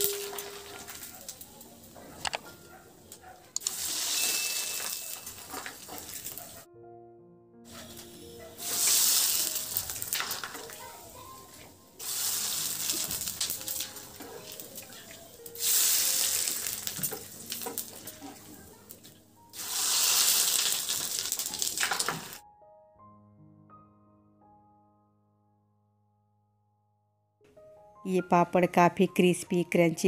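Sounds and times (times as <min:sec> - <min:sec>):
papads sizzling in hot oil: 0:00.0 - 0:01.9, 0:03.6 - 0:06.6, 0:07.8 - 0:22.4.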